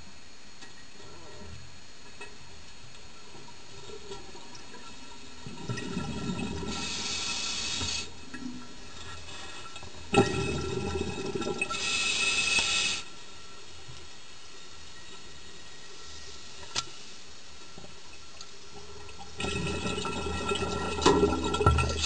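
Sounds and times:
exhaled bubbles gurgling: 3.5 - 13.2, 17.9 - 22.0
regulator air hiss: 6.6 - 8.2, 11.7 - 13.5.

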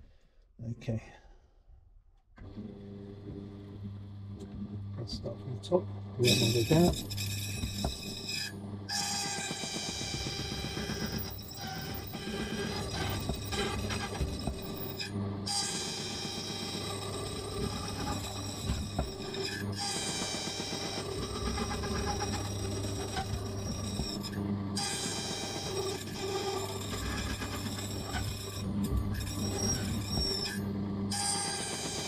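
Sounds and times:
high metallic whine: 6.2 - 8.4, 9.9 - 32.0
key-cutting machine grinding: 6.2 - 32.0.

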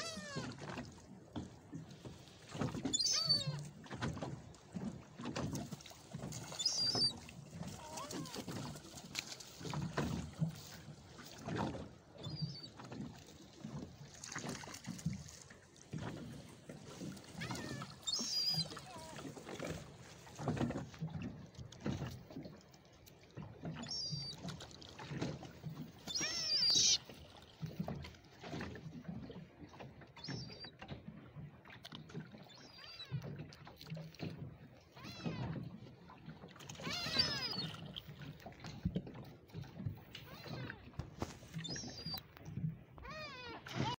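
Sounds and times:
gull call: 0.0 - 0.6, 2.8 - 3.7, 6.5 - 8.5, 17.4 - 19.3, 26.0 - 27.1, 36.8 - 37.8, 41.5 - 42.2
water sloshing against boat hull: 0.0 - 43.9.

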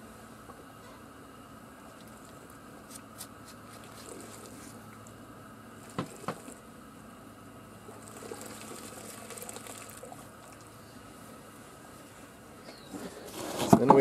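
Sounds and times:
steady low hum: 0.0 - 14.0
water sloshing in a steel drum: 7.8 - 10.8.

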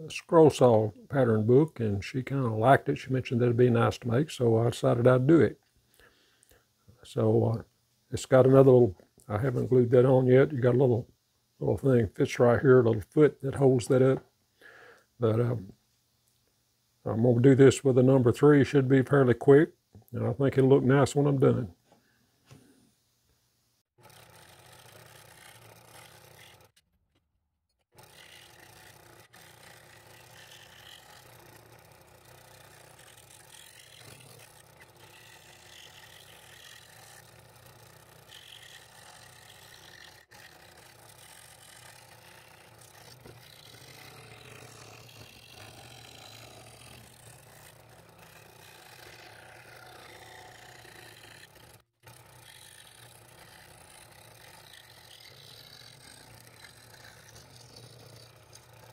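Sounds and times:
scroll saw cutting wood: 24.0 - 26.8, 27.8 - 58.9.

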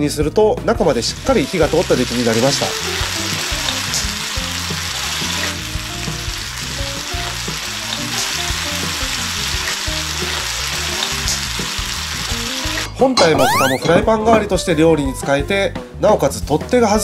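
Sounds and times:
food sizzling in oil: 0.9 - 13.8.

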